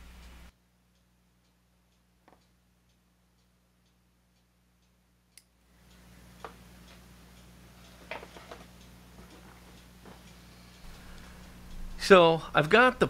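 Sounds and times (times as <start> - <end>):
faint regular ticking: 0.0 - 13.0
low hum: 5.4 - 13.0.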